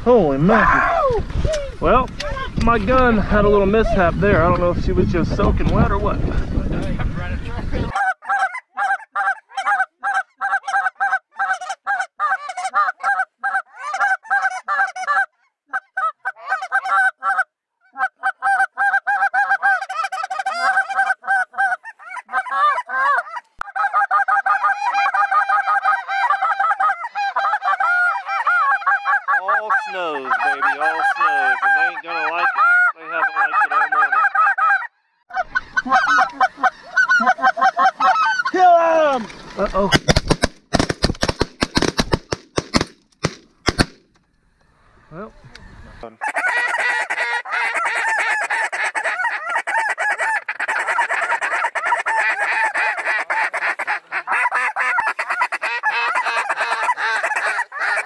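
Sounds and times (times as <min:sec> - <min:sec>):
flock of geese honking: 0:07.9 - 0:38.6, 0:46.0 - 0:58.0.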